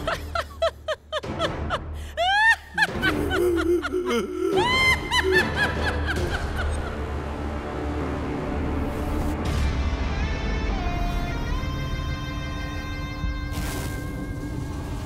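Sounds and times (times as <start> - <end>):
woman cackling: 0.0 - 6.9.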